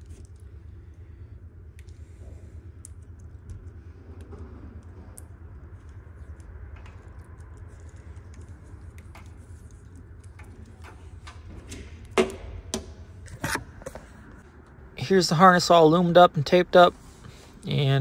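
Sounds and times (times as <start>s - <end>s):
steady low hum: 0.0s - 18.0s
plastic wires clicking and rustling: 1.7s - 14.8s.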